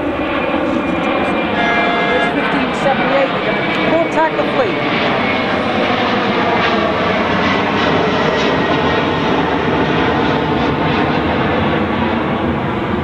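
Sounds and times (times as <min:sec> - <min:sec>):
motorboat engine drone: 0:00.0 - 0:04.0.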